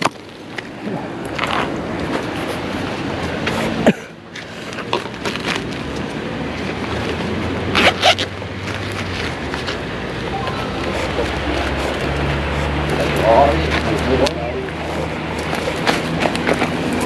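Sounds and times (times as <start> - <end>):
zipper pulled: 7.8 - 8.3
steady low hum: 9.8 - 17.0.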